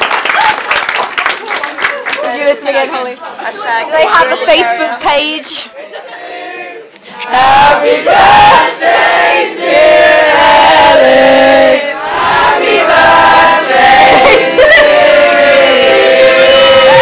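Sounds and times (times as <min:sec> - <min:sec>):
group of people singing: 0:06.1 - 0:17.0.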